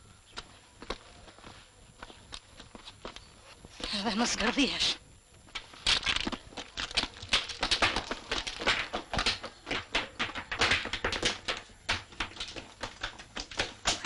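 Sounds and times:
footsteps on stone steps: 0.0s - 14.0s.

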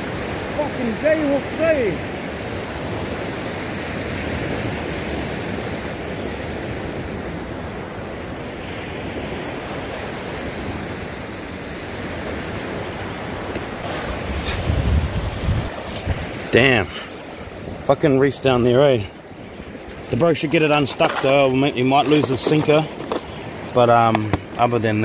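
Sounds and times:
waves breaking on beach: 0.0s - 25.0s
wind: 0.0s - 25.0s.

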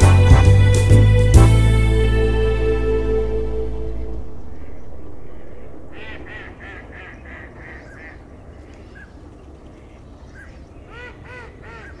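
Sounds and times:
waterfowl calling: 4.5s - 12.0s.

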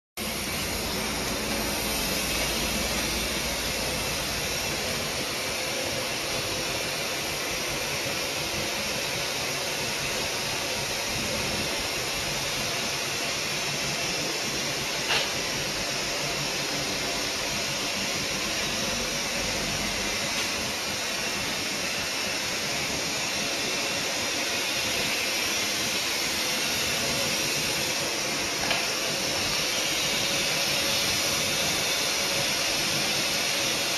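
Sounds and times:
cnc router rushing hiss: 0.2s - 33.9s.

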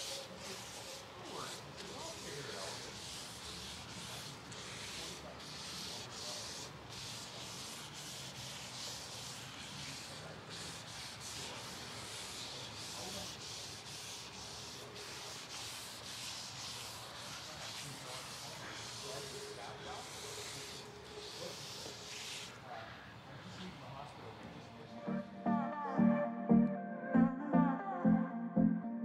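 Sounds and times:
cloth rubbing on wooden board: 0.0s - 23.1s.

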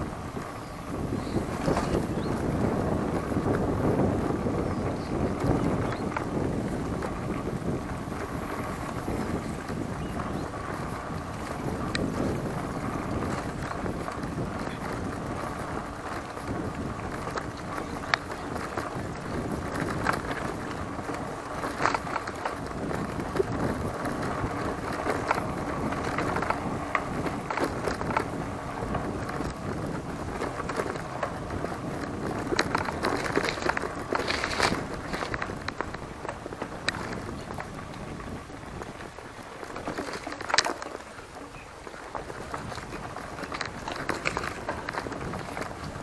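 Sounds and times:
bike clicks and rattles: 0.0s - 46.0s
tyre and wind noise: 0.0s - 46.0s.

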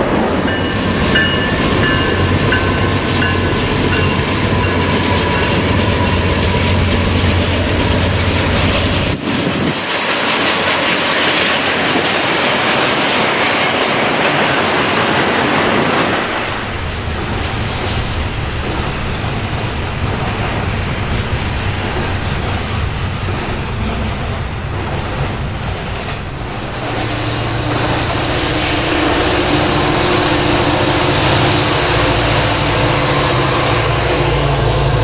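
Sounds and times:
diesel locomotive engine drone: 0.0s - 35.0s
freight train wheels rumbling: 0.0s - 35.0s.

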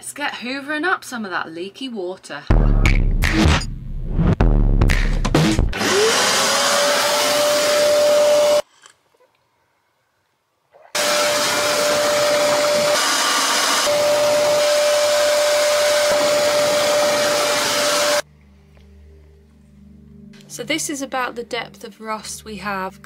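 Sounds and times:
vacuum cleaner motor whining: 5.8s - 8.6s, 11.0s - 18.2s.

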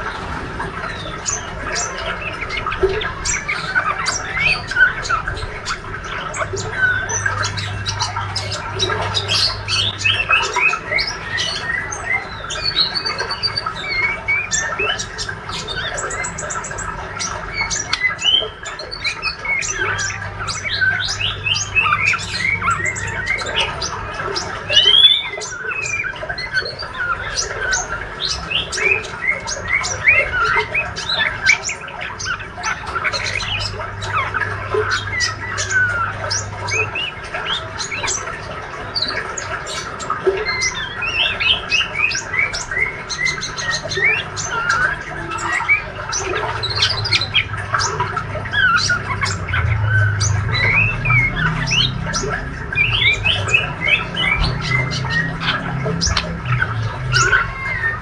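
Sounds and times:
bird chirps and whistles: 24.7s - 26.0s.

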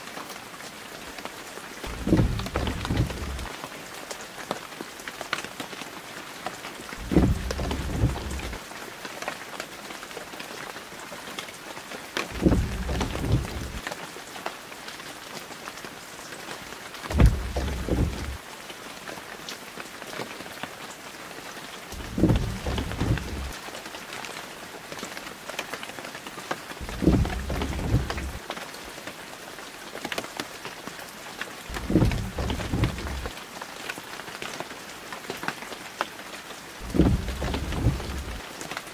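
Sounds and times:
heavy rain hiss: 0.0s - 9.6s, 11.5s - 14.8s, 16.1s - 19.3s, 21.7s - 24.6s, 26.5s - 29.1s, 31.1s - 34.2s, 36.4s - 38.9s
low rumble: 1.9s - 3.5s, 7.0s - 8.6s, 12.4s - 13.8s, 17.1s - 18.4s, 22.0s - 23.6s, 26.8s - 28.4s, 31.7s - 33.3s, 36.8s - 38.4s.

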